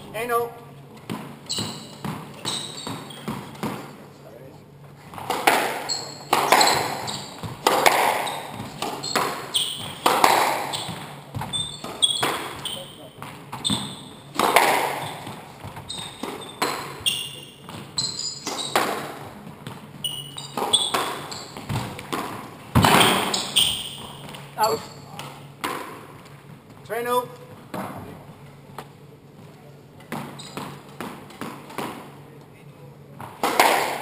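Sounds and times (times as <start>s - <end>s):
squash ball hitting rackets and walls: 0.0s - 4.0s, 4.8s - 26.8s, 27.5s - 29.0s, 29.9s - 32.3s, 33.1s - 34.0s
shoe squeaks on wooden floor: 1.4s - 3.6s, 5.7s - 14.4s, 15.0s - 19.2s, 20.0s - 22.0s, 22.8s - 25.2s, 30.3s - 30.8s.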